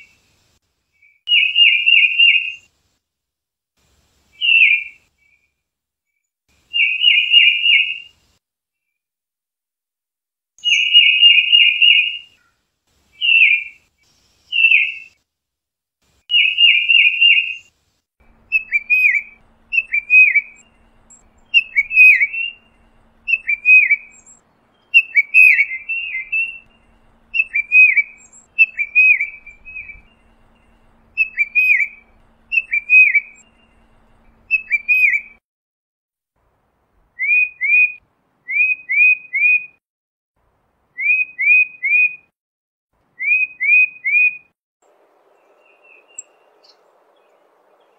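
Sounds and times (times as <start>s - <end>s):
titmouse whistled calls: 1.0s - 2.7s, 4.4s - 5.0s, 13.2s - 13.8s, 14.5s - 15.2s, 16.3s - 17.7s, 18.3s - 35.4s, 37.2s - 39.7s
faint low hum: 18.2s - 35.4s.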